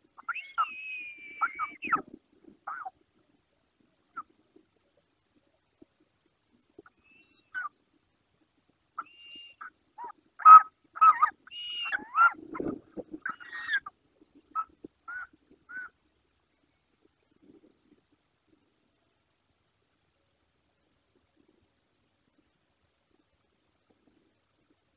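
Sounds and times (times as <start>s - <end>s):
eagles whistled calls: 0.2s - 2.0s, 6.9s - 7.7s, 9.0s - 12.4s, 13.2s - 13.9s.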